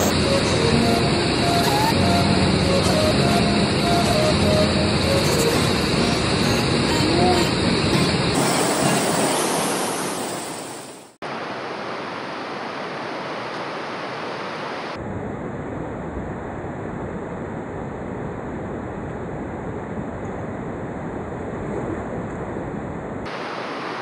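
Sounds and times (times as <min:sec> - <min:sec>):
river rapids rushing: 0:00.0 - 0:14.9.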